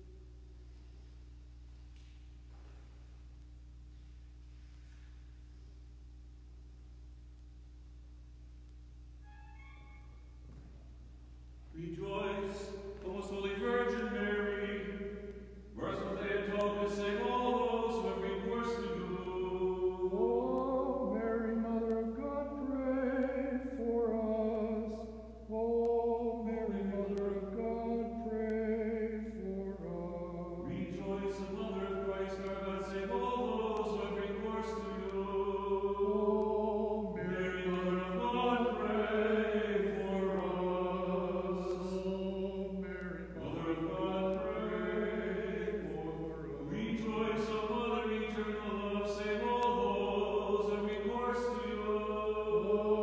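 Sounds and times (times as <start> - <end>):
unaccompanied liturgical chanting: 11.7 - 53.0.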